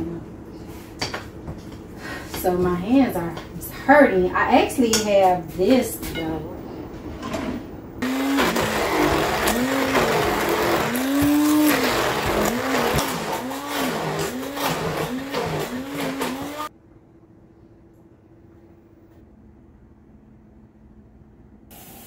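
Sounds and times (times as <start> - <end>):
immersion blender motor: 8.0 - 16.7.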